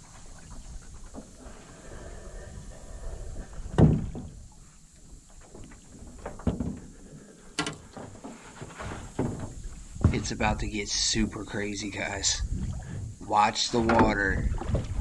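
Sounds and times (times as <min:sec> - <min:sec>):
hollow knocks on metal boat: 0:03.7 - 0:04.4, 0:09.1 - 0:10.3.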